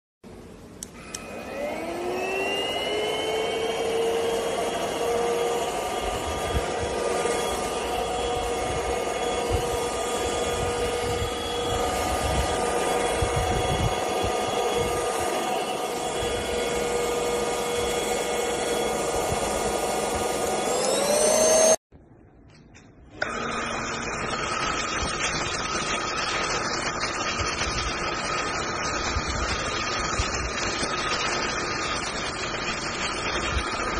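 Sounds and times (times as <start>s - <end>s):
vacuum motor high whine: 0.7s - 21.8s, 23.1s - 33.9s.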